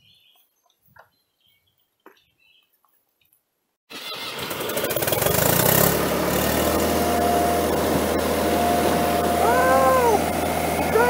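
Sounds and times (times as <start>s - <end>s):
vehicle engine starting and running: 3.9s - 11.0s.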